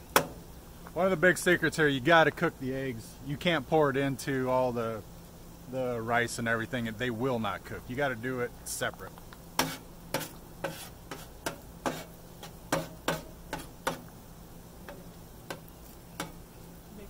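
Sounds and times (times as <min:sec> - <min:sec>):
metal spatula scraping griddle: 0:09.6 - 0:14.1.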